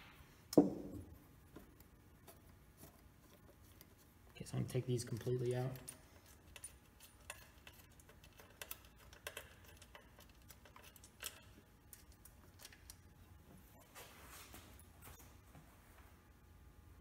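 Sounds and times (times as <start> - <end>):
metal bolts clicking and tapping: 5.1 - 13.0.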